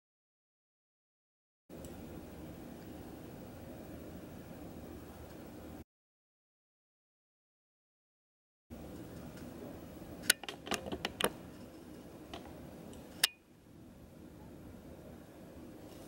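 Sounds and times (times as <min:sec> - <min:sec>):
room hiss: 0:01.7 - 0:05.8, 0:08.7 - 0:10.4, 0:11.1 - 0:16.0.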